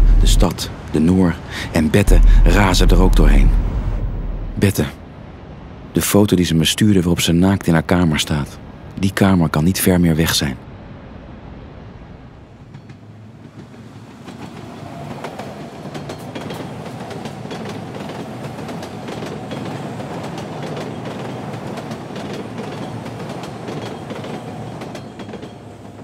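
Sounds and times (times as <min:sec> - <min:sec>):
train rumbling and clattering: 0:00.0 - 0:04.9, 0:12.4 - 0:26.0.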